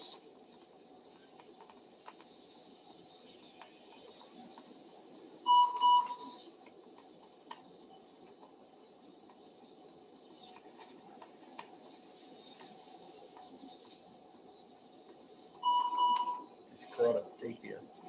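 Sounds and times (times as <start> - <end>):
faint hiss of suction: 0.0 - 15.5, 16.7 - 18.0
two-pulse electronic beep: 5.5 - 6.4, 15.6 - 16.5.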